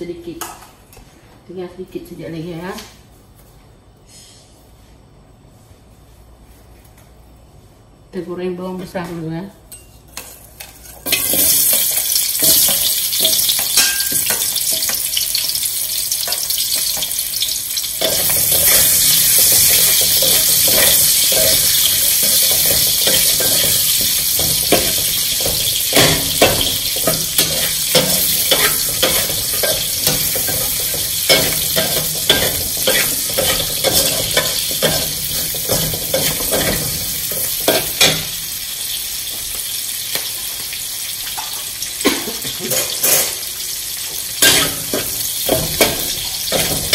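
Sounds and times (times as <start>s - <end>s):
onions sizzling in oil: 11.0s - 46.9s
metal spatula scraping wok: 18.0s - 38.4s.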